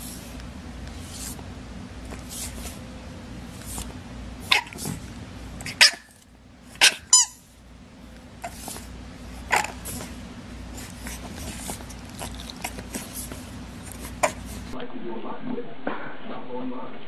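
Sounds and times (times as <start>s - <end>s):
dog barking: 4.5s - 4.8s, 5.7s - 6.1s, 6.8s - 7.1s.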